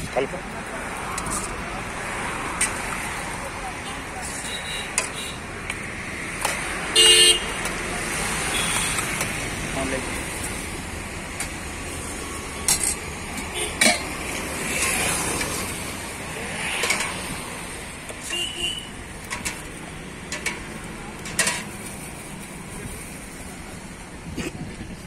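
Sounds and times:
background traffic: 0.0 - 25.0
steel spoon clinking against pots: 4.9 - 5.2, 13.7 - 14.2, 16.8 - 17.2, 20.3 - 21.8.

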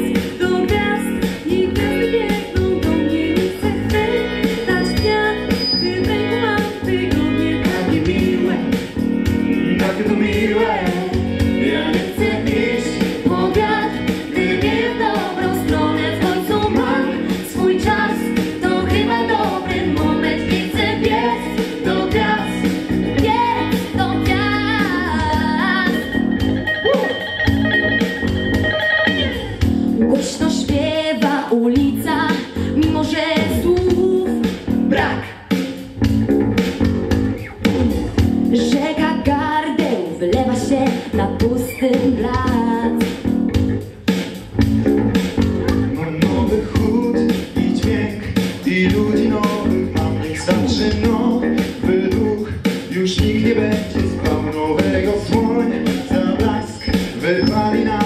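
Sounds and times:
instrumental accompaniment: 0.0 - 31.2
group of young people singing: 1.4 - 8.8, 9.6 - 26.1, 46.0 - 58.0.

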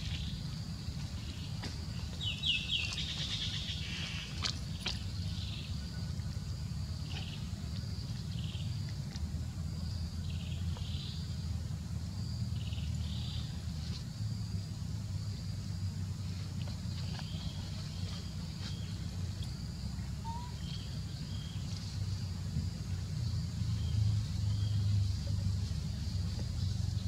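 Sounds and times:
steady low rumble: 0.0 - 27.0.

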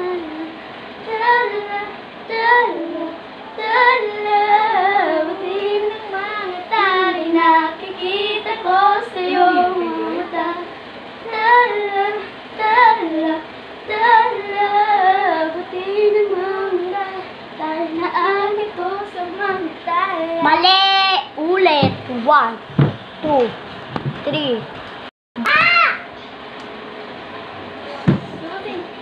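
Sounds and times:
girls singing pop song: 0.0 - 22.2.

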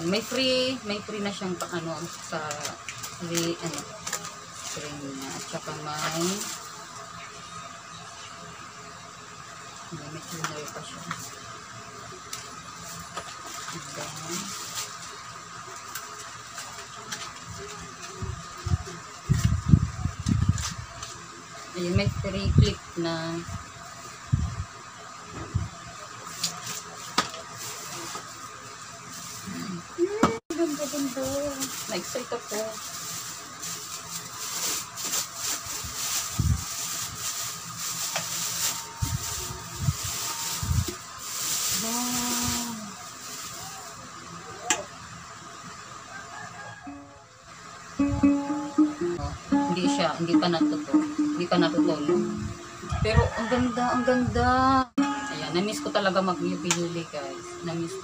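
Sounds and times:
plastic wrap crinkling: 0.1 - 7.1, 12.4 - 18.2, 26.3 - 28.4, 30.5 - 44.0
cardboard package rustling: 30.5 - 43.9.

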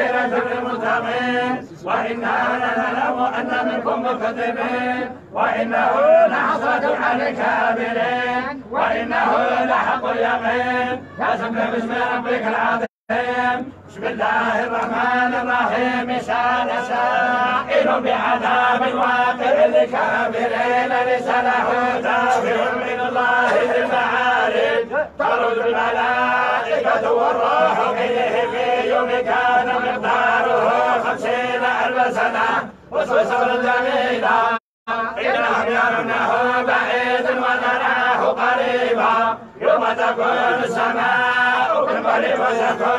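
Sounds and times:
men chanting in unison: 0.0 - 42.9.

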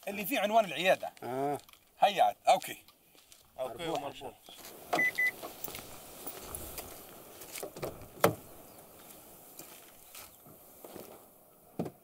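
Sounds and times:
small clicks and rustling: 0.6 - 2.0.

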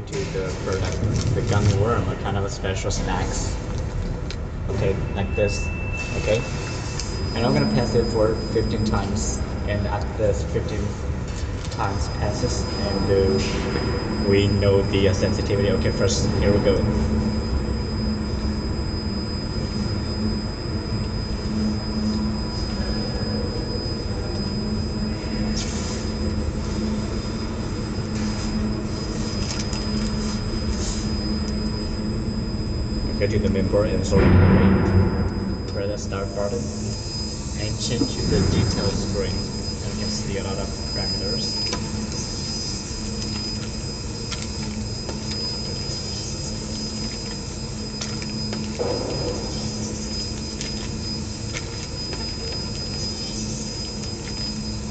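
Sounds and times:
machinery hum and whine: 0.0 - 54.9.

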